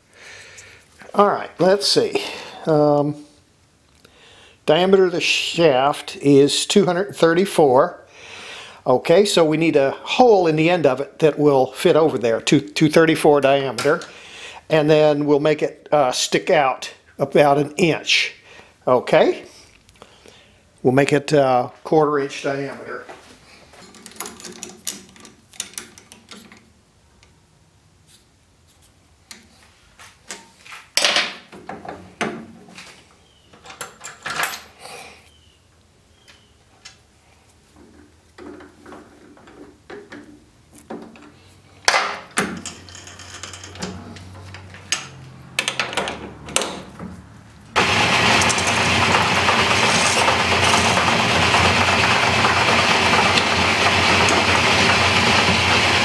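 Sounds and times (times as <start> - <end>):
metal lathe running: 47.8 - 56.0.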